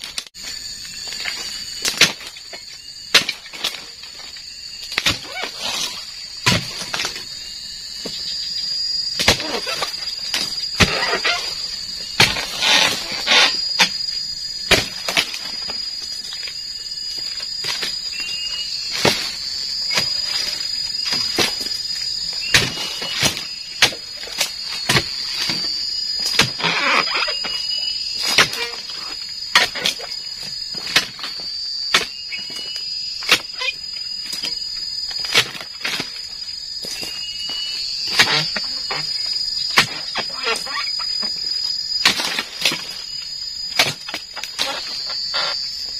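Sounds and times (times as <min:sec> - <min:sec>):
fronds rustling: 0:00.0 - 0:45.9
high-pitched insect drone: 0:00.0 - 0:45.9
chisel blade chopping palm fronds: 0:01.8 - 0:02.3, 0:09.2 - 0:11.4, 0:12.2 - 0:14.0, 0:14.6 - 0:15.6, 0:28.2 - 0:28.7, 0:39.7 - 0:40.4, 0:42.0 - 0:43.0, 0:43.7 - 0:44.2.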